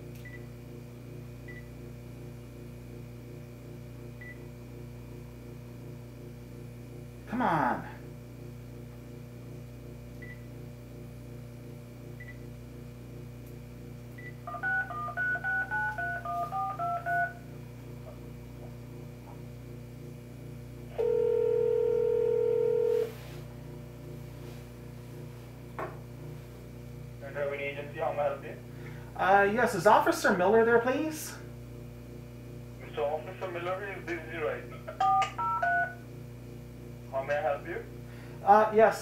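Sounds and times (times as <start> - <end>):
phone keypad beeps: 14.2 - 17.4
phone ringback tone: 14.4 - 17.4, 20.9 - 23.2, 35.0 - 36.0.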